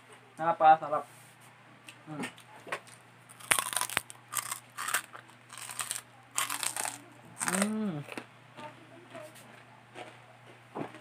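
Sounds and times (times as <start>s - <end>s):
pork rinds crunching when chewed: 2.4s - 8.2s.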